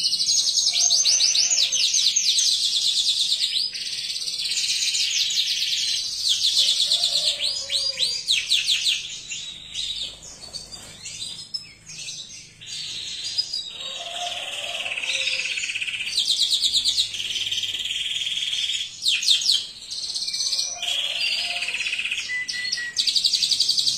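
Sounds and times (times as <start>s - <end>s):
canary singing trills: 0.0s - 23.9s.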